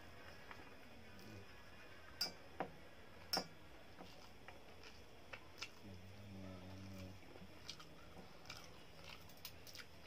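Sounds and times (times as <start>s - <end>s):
wet eating clicks and smacks: 4.5s - 5.8s, 7.6s - 10.0s.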